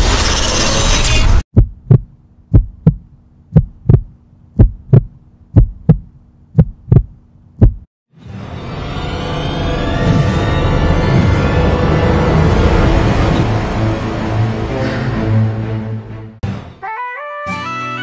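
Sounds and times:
heartbeat thumps: 0:01.5 - 0:07.9.

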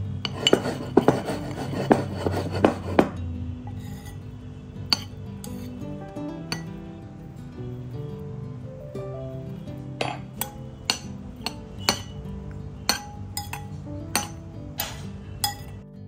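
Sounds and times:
soft background music with guitar: 0:00.0 - 0:16.0
metal spoon clinking against bowl: 0:00.2 - 0:02.0, 0:03.7 - 0:04.2, 0:04.8 - 0:05.8, 0:06.5 - 0:06.8, 0:10.0 - 0:15.8.

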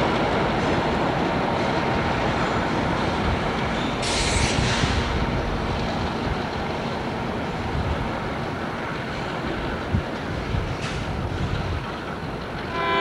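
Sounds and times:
diesel locomotive engines: 0:00.0 - 0:13.0
sharp hiss: 0:04.0 - 0:05.3.

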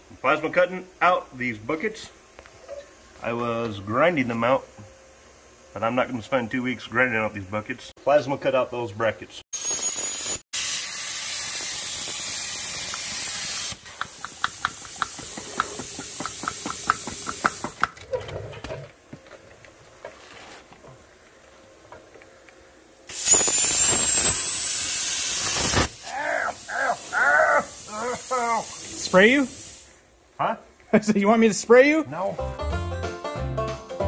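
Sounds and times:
plasma cutter hissing with whine: 0:09.6 - 0:17.7, 0:23.0 - 0:30.1
crackling rapid clicks: 0:11.4 - 0:18.0.

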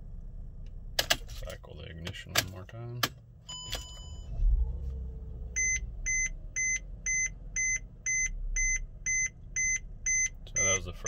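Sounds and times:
low thud and rumble: 0:04.2 - 0:06.6
warning chime beeping: 0:05.6 - 0:11.0.

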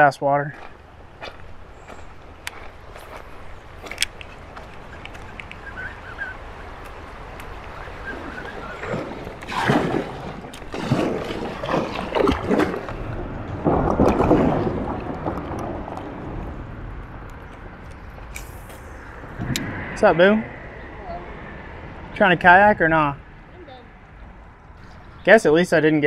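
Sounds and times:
low wind rumble on microphone: 0:00.6 - 0:25.3
paddle strokes splashing water: 0:04.7 - 0:16.3.

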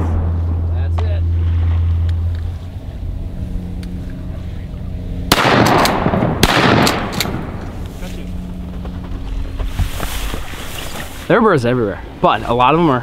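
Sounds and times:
shotgun shots with echo: 0:05.3 - 0:07.6.

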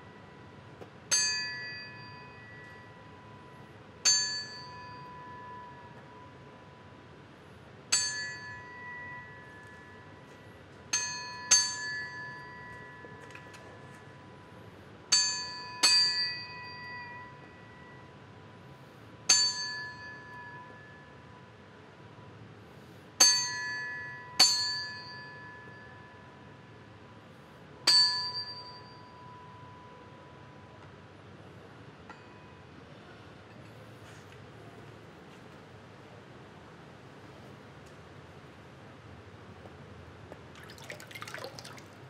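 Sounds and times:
faint steady ringing tone: 0:00.0 - 0:33.7
small metal bell ringing: 0:01.1 - 0:03.3, 0:04.0 - 0:06.0, 0:07.9 - 0:10.2.

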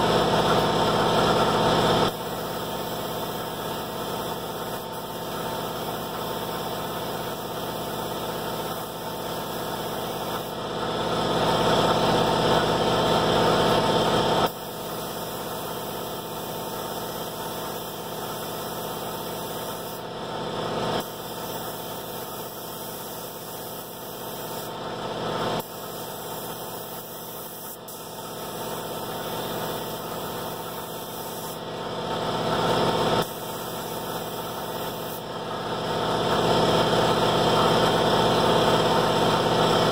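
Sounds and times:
air compressor running: 0:00.0 - 0:39.9
spray gun air hissing: 0:01.6 - 0:10.6, 0:13.7 - 0:20.1, 0:20.9 - 0:24.8, 0:25.5 - 0:31.6, 0:32.9 - 0:35.4.

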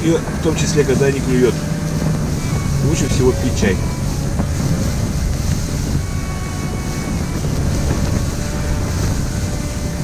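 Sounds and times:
strong wind rumbling: 0:00.0 - 0:10.0.

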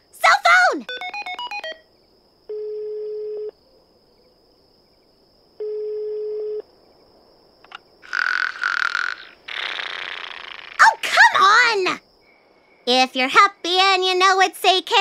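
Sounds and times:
long phone beeps: 0:00.9 - 0:01.8.

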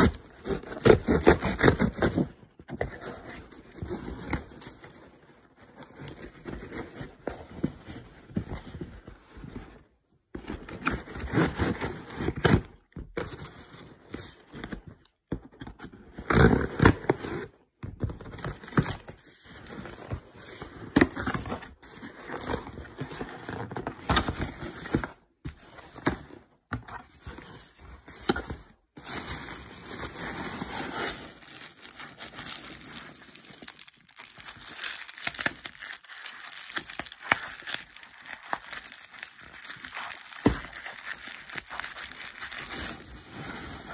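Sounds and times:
cardboard box rustling and scraping: 0:19.5 - 0:33.8, 0:42.5 - 0:43.9
bubble wrap crinkling: 0:29.0 - 0:43.9.

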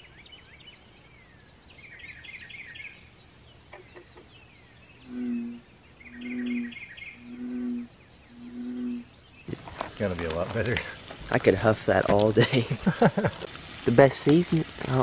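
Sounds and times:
songbirds chirping: 0:00.0 - 0:15.0
frog giving deep call: 0:05.0 - 0:09.1.

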